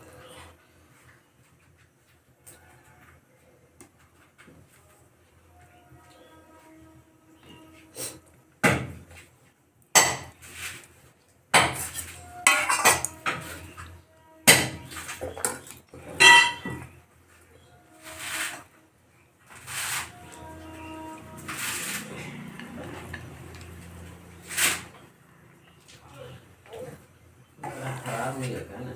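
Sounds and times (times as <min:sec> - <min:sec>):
wooden spatula scraping metal pot: 0:11.6 - 0:18.8, 0:19.4 - 0:25.2.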